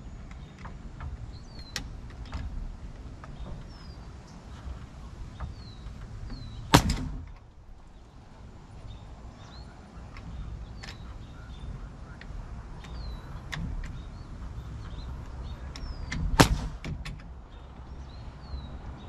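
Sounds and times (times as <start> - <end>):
nail gun bang: 6.3 - 7.4, 16.1 - 17.3.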